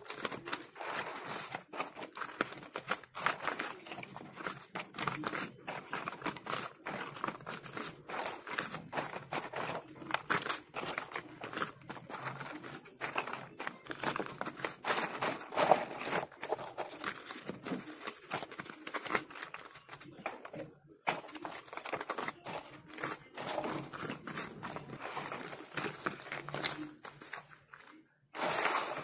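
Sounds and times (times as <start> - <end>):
paper banknotes rustling: 0.0 - 29.0.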